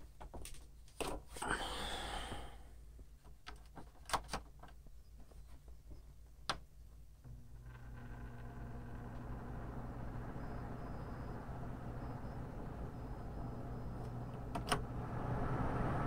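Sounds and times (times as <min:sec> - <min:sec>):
fan motor humming: 0:07.2 - 0:16.0
air rushing from fan blades: 0:12.6 - 0:16.0.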